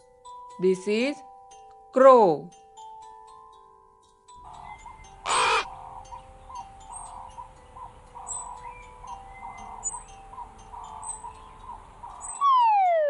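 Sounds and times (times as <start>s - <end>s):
crow cawing: 4.4s - 6.2s
bird calls and chirps: 4.4s - 13.0s.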